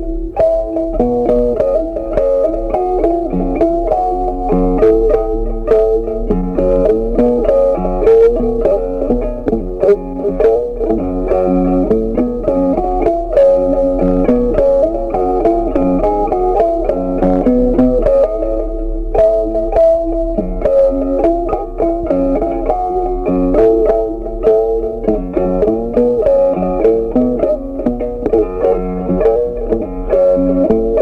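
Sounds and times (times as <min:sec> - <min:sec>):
bass line: 0:00.0 - 0:31.0
plucked string melody: 0:00.0 - 0:31.0.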